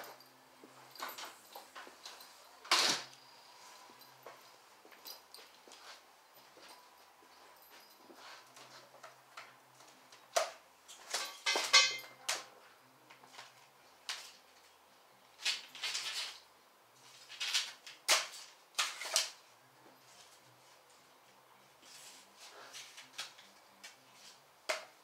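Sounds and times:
hand tools and parts clattering: 0.0 - 12.5, 15.4 - 16.4.

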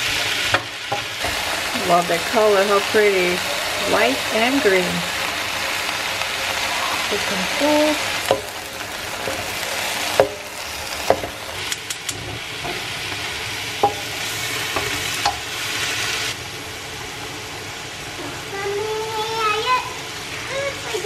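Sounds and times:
vegetables sizzling in a wok: 0.0 - 21.0
utensils knocking: 0.9 - 12.9, 13.8 - 15.4.

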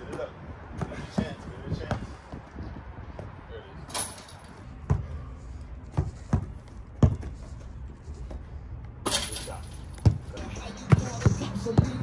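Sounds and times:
basketball bouncing on hard court: 4.8 - 5.2, 5.9 - 7.3, 10.0 - 12.0.

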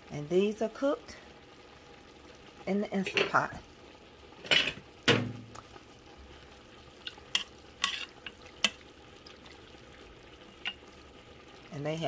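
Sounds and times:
spoon stirring in metal pot: 7.0 - 8.9.

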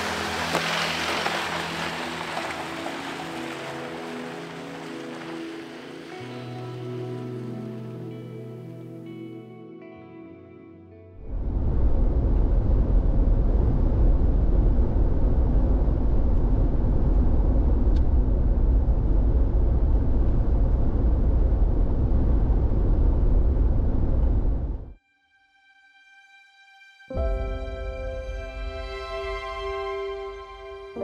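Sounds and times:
vehicle road noise: 0.0 - 7.1, 11.3 - 25.0.

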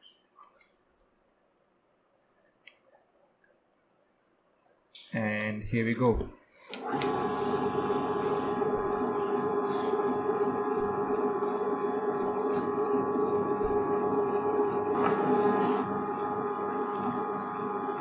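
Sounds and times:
wet grinder motor whining: 6.7 - 18.0.

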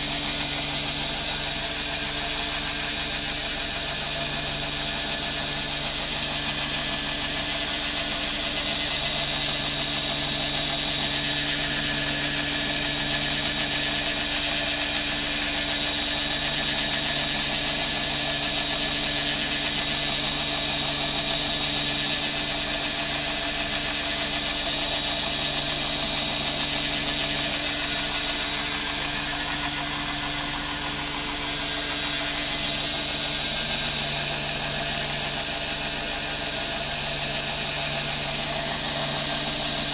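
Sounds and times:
belt grinder motor hum: 6.4 - 39.9.

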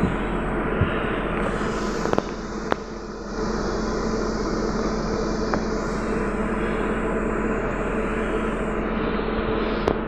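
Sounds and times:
trolleybus cabin rumble: 0.0 - 10.0.

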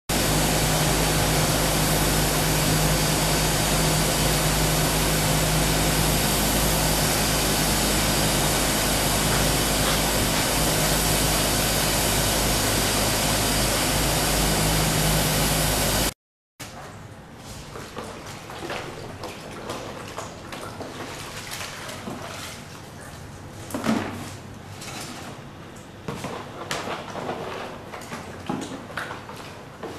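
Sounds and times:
steady low hum: 0.1 - 16.1
steam hissing: 0.1 - 16.1.

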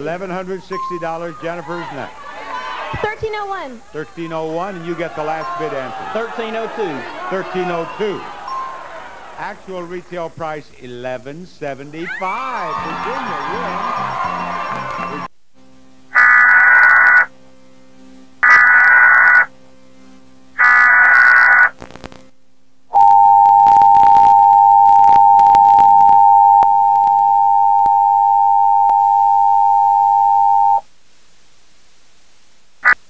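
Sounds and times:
warbling digital data bursts: 16.2 - 17.3, 18.4 - 19.5, 20.6 - 22.0
two-tone attention signal: 23.0 - 30.8.

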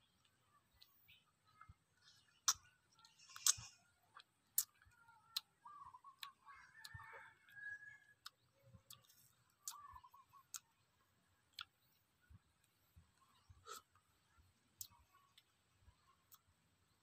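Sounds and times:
chewing crunchy seeds: 2.0 - 10.8, 12.6 - 14.0.

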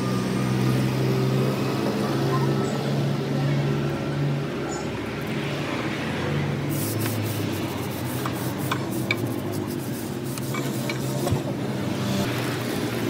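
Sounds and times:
scrubber rubbing metal fins: 6.8 - 11.4.

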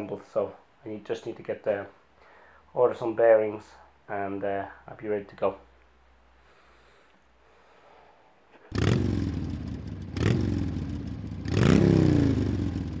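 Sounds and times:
engine revving: 8.7 - 13.0.

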